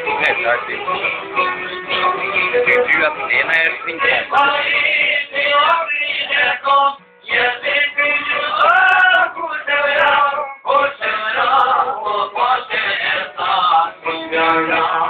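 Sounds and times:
plucked lute: 0.0s - 13.3s
men singing together: 4.0s - 15.0s.

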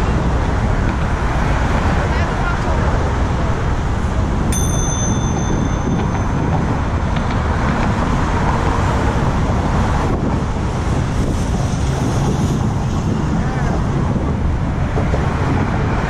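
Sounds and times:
wind and road noise: 0.0s - 16.0s
bicycle bell ringing: 4.5s - 8.0s.

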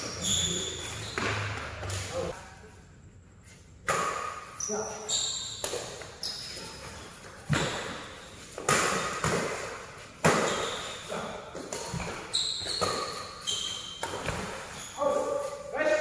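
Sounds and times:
shoes squeaking on court: 0.0s - 2.3s, 4.2s - 15.6s
rackets hitting shuttlecock: 0.7s - 2.1s, 3.8s - 4.6s, 5.5s - 6.2s, 7.4s - 14.8s.

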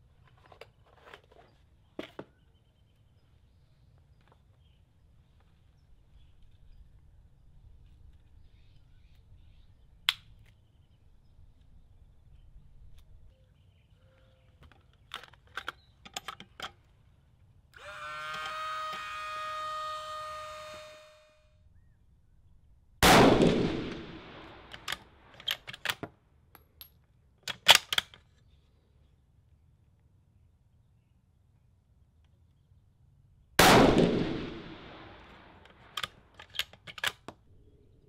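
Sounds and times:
rifle shot with echo: 23.0s - 25.0s, 33.6s - 36.0s
cartridges clicking into magazine: 23.9s - 26.1s, 26.8s - 28.3s, 35.2s - 37.3s.

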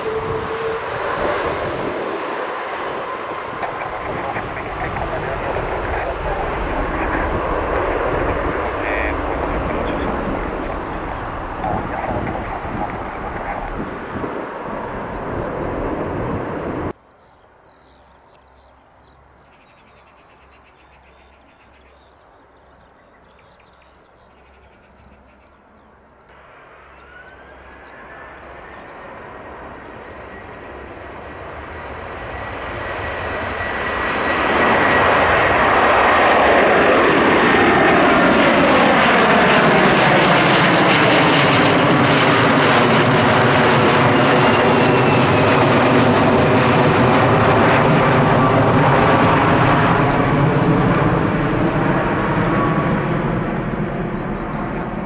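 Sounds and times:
jet engines roaring at takeoff: 0.0s - 17.0s, 21.5s - 55.0s.

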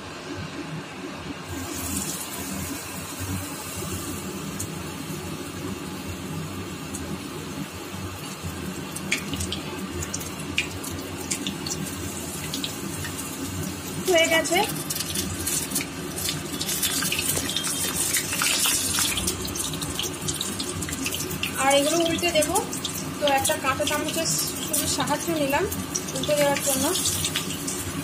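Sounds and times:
battered flowers deep-frying in oil: 0.0s - 28.0s
oil popping and crackling: 8.2s - 28.0s.

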